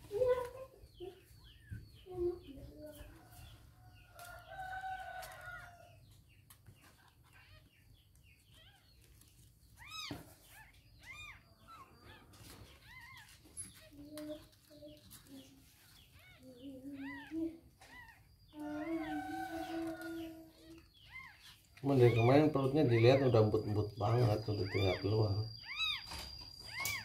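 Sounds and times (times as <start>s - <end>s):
rooster crowing: 4.2s - 6.0s, 18.6s - 20.4s.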